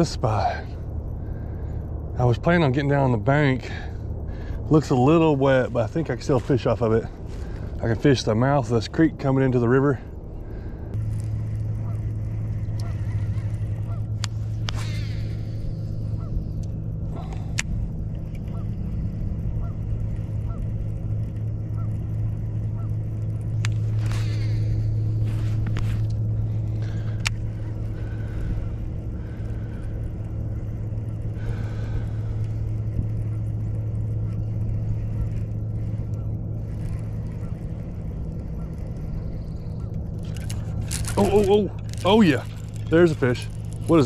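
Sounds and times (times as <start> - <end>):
low hum: 0.0 - 44.0
distant geese honking: 10.0 - 44.0.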